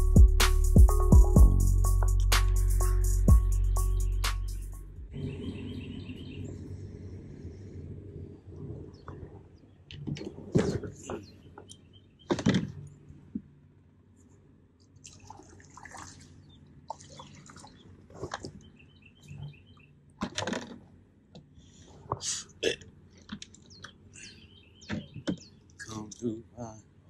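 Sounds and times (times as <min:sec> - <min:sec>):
water dripping and splashing: 0:14.9 - 0:18.7.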